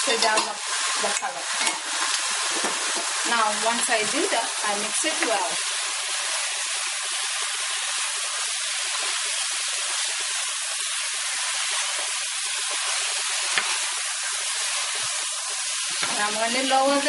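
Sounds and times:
chicken sizzling in hot oil: 0.0 - 17.0.

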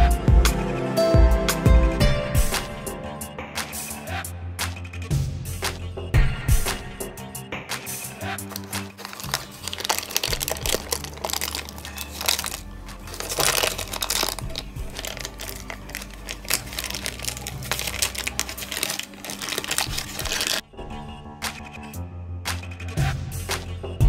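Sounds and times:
background music: 0.0 - 24.0
plastic sheet crinkling: 8.3 - 20.6.

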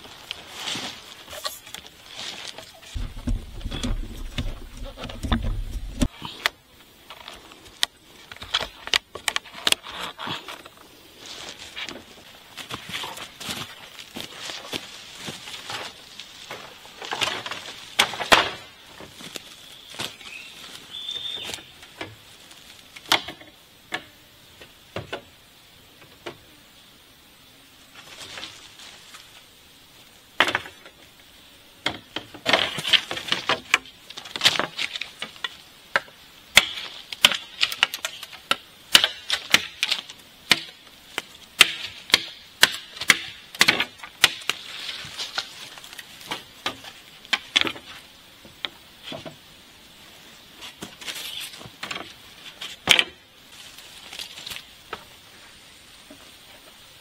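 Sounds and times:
bamboo poles knocking and clattering: 1.3 - 6.5, 11.8 - 20.2, 21.2 - 25.3, 30.4 - 31.1, 31.8 - 49.4, 50.6 - 53.2.

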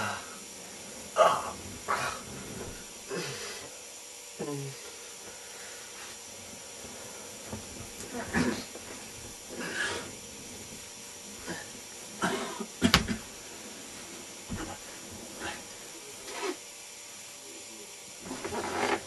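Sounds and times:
man groaning and grunting: 4.4 - 4.8.

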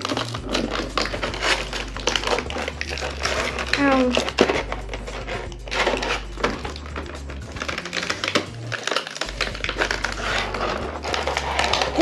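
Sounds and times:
background music with bass line: 0.0 - 12.0
plastic packaging crackling: 0.0 - 12.0.

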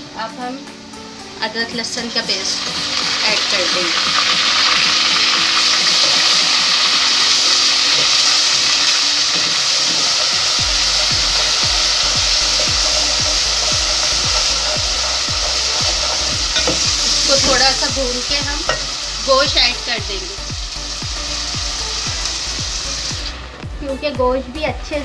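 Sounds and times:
onions sizzling in hot oil: 0.0 - 25.0
low regular thumping: 10.6 - 25.0.

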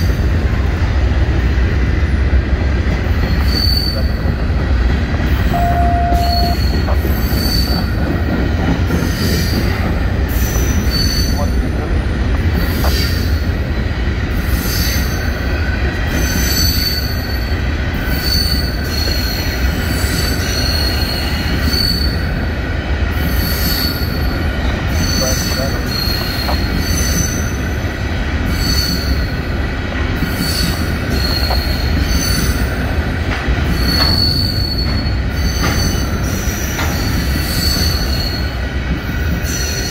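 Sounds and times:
train wheels rumbling on rail: 0.0 - 39.9
high-pitched wheel squeals: 3.3 - 4.2, 5.5 - 7.9, 10.3 - 11.5, 18.1 - 22.2, 33.8 - 38.6.

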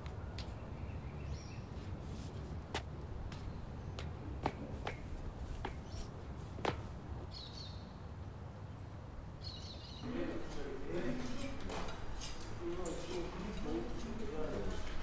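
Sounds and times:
bird chirping: 0.3 - 1.9, 5.7 - 6.1, 7.3 - 8.0, 8.7 - 11.3.

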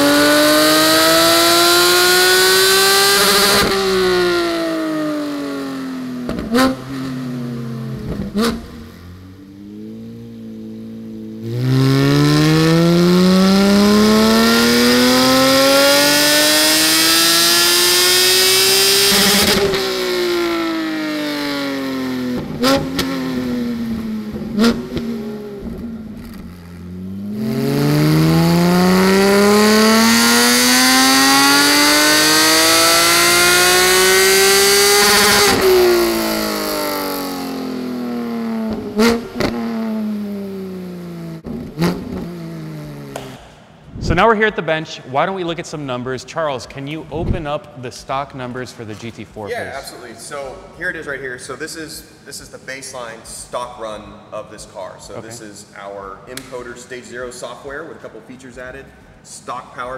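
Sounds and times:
car engine revving on dyno: 0.0 - 44.1
exhaust pops: 6.2 - 7.1, 7.9 - 9.0, 19.1 - 20.6, 22.3 - 28.2, 38.6 - 39.9, 41.4 - 44.5.

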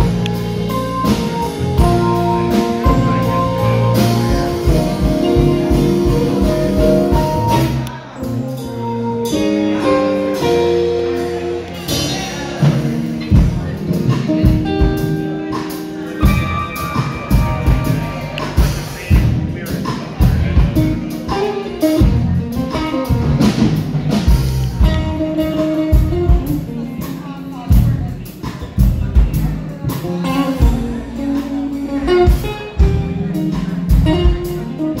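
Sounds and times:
live band playing: 0.0 - 35.0
drum kit hits: 11.8 - 26.7.

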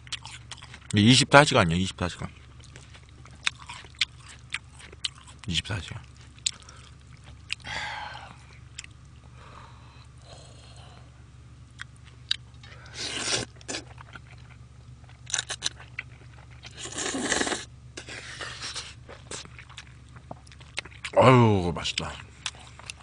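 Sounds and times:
wet chewing: 0.0 - 1.4, 2.2 - 9.2, 11.8 - 21.2, 21.9 - 23.0
person slurping noodles: 16.8 - 19.0.

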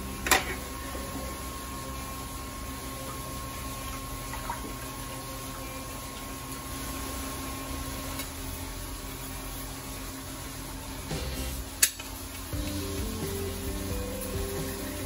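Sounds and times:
running water: 0.0 - 11.2
low steady hum: 0.0 - 15.0.

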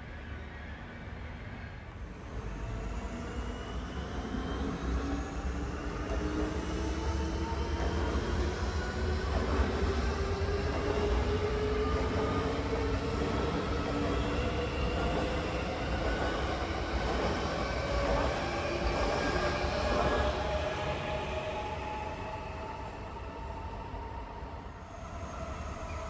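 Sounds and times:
train wheels rumbling on rails: 2.4 - 22.3.

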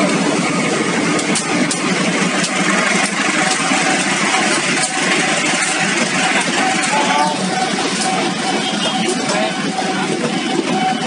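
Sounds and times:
locomotive diesel engine: 0.0 - 11.0
wheels clicking on rails: 0.0 - 11.0.

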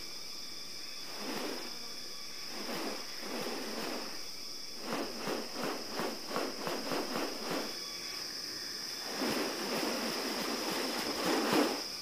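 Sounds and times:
high drone of insects: 0.0 - 12.0
bird wings swishing whooshes: 1.0 - 1.8, 2.5 - 7.8, 9.0 - 12.0.

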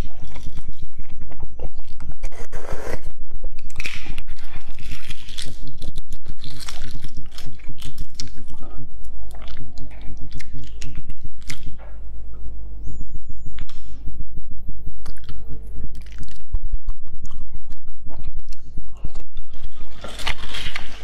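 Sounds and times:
close chewing: 3.6 - 11.8.

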